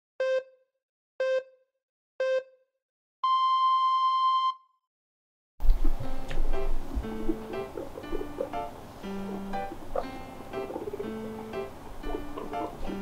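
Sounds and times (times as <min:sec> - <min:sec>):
electronic countdown beeps: 0:00.2 - 0:00.6, 0:01.2 - 0:01.6, 0:02.2 - 0:02.6, 0:03.2 - 0:04.7.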